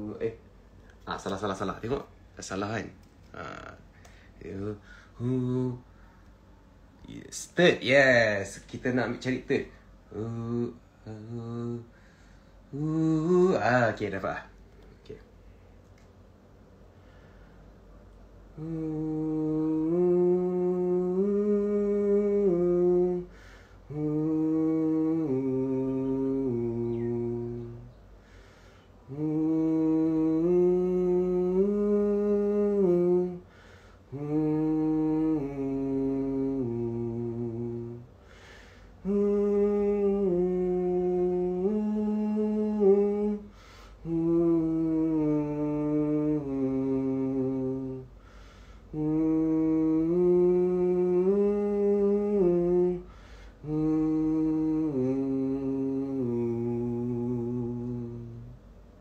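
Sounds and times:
man humming a melody: 0:00.0 - 0:00.4, 0:03.3 - 0:05.9, 0:08.9 - 0:12.0, 0:12.7 - 0:14.4, 0:18.5 - 0:28.2, 0:29.0 - 0:38.2, 0:39.0 - 0:48.2, 0:48.9 - 0:58.7.

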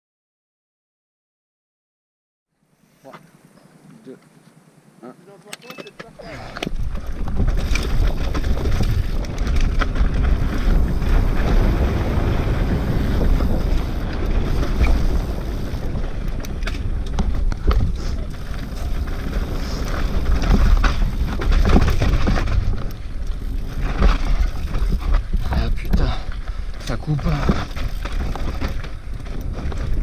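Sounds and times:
bike tyres on dirt trail: 0:02.6 - 0:30.0
bike clacking and rattling on rocks: 0:05.5 - 0:30.0
wind buffeting microphone: 0:06.3 - 0:30.0.

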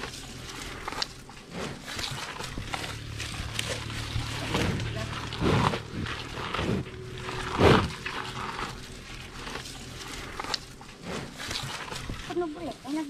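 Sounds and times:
buffalo breathing and snuffling: 0:00.0 - 0:13.0.

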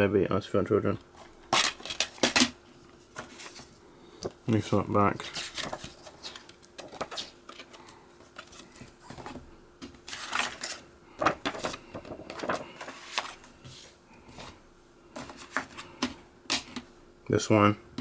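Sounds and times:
paper pages rustling: 0:01.2 - 0:14.5.

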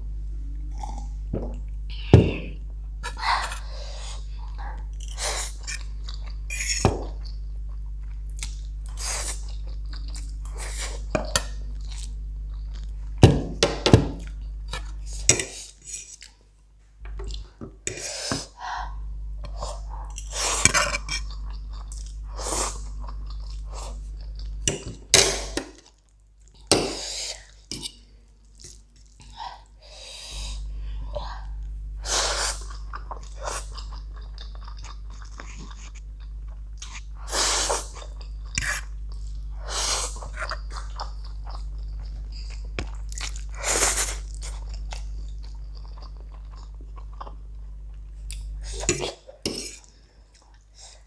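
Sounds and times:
steady low hum: 0:00.0 - 0:51.0
fork scraping ceramic plate: 0:06.5 - 0:06.9
mouth chewing noodles: 0:31.4 - 0:50.7.

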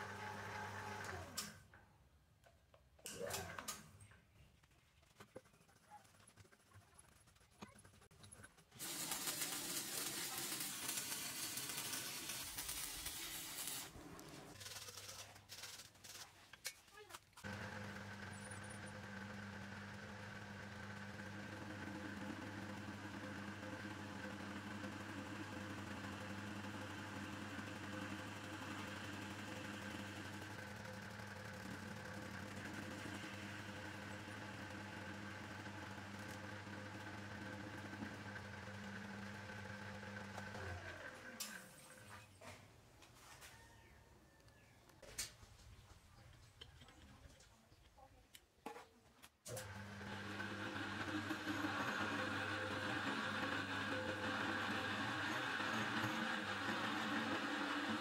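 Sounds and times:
welding arc crackling hiss: 0:08.8 - 0:14.0
metal lathe motor hum: 0:17.5 - 0:41.6, 0:49.5 - 0:58.0.

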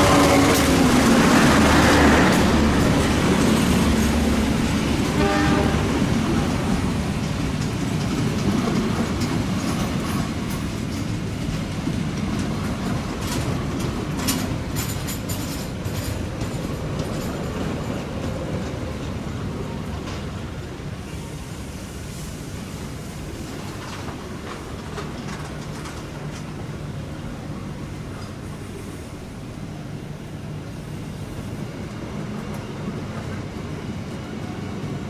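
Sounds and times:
train horn: 0:00.0 - 0:00.8, 0:05.0 - 0:06.1
train passing: 0:00.0 - 0:35.0
wheels clicking over rail joints: 0:06.6 - 0:20.4, 0:23.5 - 0:27.0.

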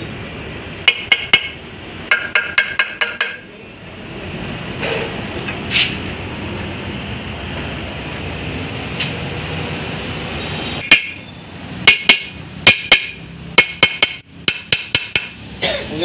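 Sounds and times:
hammer striking metal: 0:00.8 - 0:03.5, 0:10.8 - 0:11.2, 0:11.8 - 0:15.4.

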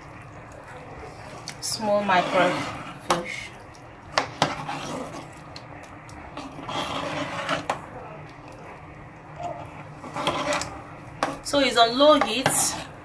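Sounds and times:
spoon scraping pot: 0:01.7 - 0:03.5, 0:04.2 - 0:05.4, 0:06.4 - 0:07.9, 0:09.4 - 0:11.4, 0:12.1 - 0:13.0.

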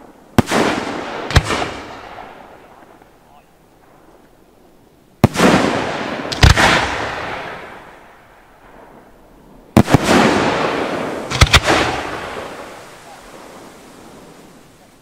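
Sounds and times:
firework shells bursting: 0:09.7 - 0:13.8.

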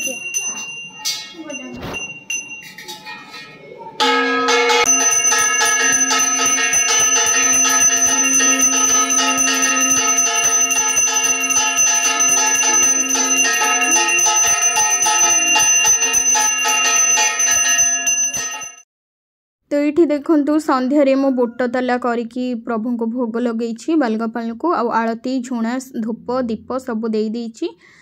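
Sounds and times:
brass hand bell ringing rapidly: 0:04.0 - 0:18.8.

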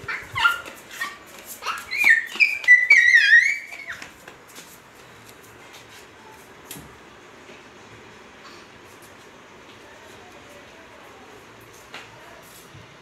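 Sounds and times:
child squealing: 0:00.1 - 0:04.0.

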